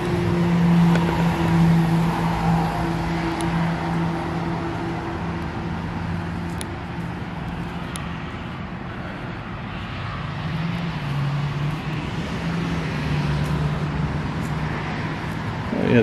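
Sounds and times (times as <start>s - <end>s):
road traffic noise: 0.0s - 16.0s.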